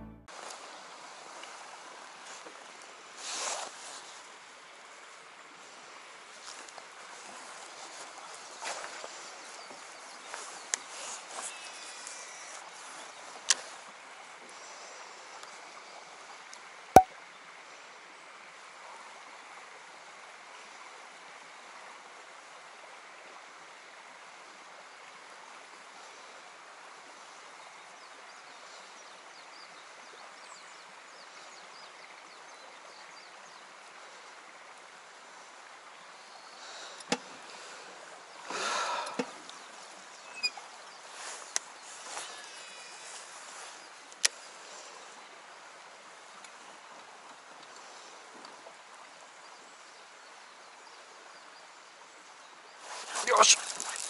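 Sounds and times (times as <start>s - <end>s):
faint outdoor background noise: 0.0s - 54.0s
brief rustle: 52.8s - 54.0s.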